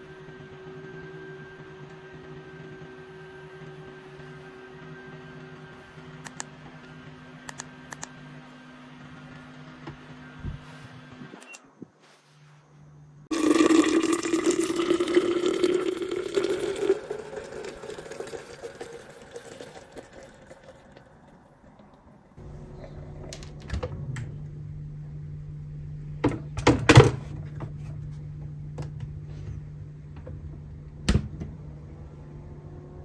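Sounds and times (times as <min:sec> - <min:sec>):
water pouring into pitcher: 0:13.3 - 0:21.8
low steady hum: 0:20.0 - 0:33.0.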